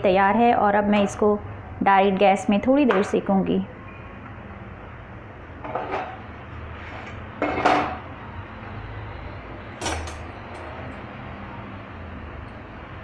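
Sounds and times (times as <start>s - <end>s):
low background hum: 0.0s - 13.0s
metal utensils clattering on cookware: 5.6s - 6.2s, 9.8s - 10.2s.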